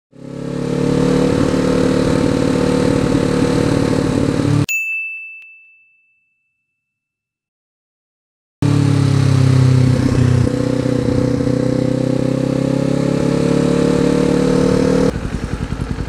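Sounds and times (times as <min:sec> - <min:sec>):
motorcycle engine riding: 0:00.1 - 0:04.7, 0:08.6 - 0:16.0.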